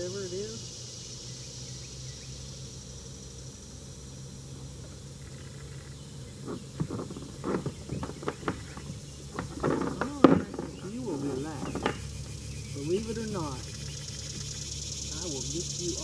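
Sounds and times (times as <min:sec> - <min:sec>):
insects buzzing: 0:00.0 - 0:16.0
low even hum: 0:00.0 - 0:16.0
short knocks and rattles: 0:06.4 - 0:12.2.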